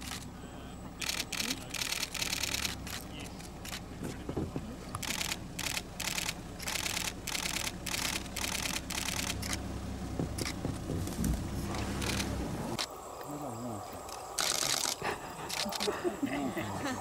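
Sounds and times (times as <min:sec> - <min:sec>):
camera shutter bursts: 0:01.0 - 0:03.8, 0:05.0 - 0:09.6, 0:12.0 - 0:12.9, 0:14.4 - 0:15.9.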